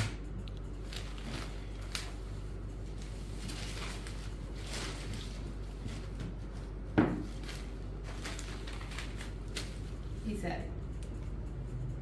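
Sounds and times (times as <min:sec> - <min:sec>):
steady low hum: 0:00.0 - 0:12.0
fabric rustling: 0:00.8 - 0:10.3.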